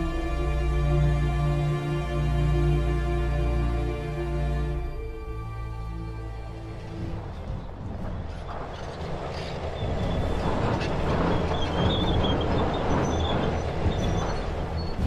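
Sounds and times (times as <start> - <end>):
tank engines rumbling: 0.0 - 15.0
tank tracks clanking and squealing: 6.4 - 15.0.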